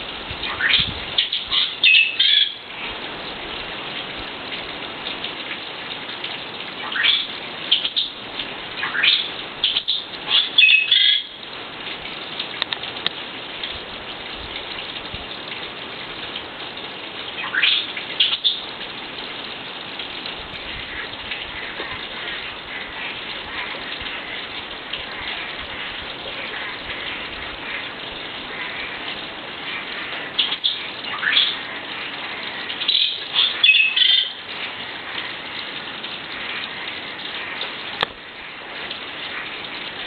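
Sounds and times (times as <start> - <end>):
steady forest hiss: 0.0 - 40.0
birds chirping: 0.4 - 2.6, 8.8 - 11.4, 25.2 - 34.4.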